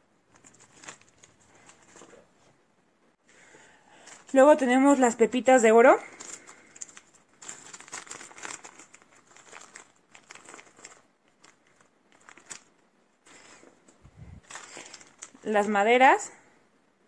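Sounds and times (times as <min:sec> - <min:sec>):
plastic bag crinkling: 0:00.3 - 0:02.3, 0:03.9 - 0:05.0, 0:06.0 - 0:16.0.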